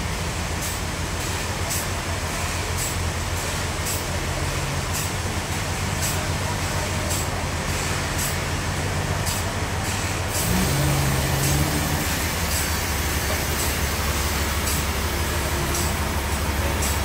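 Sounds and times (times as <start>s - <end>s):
forklift engine running: 0.0s - 17.0s.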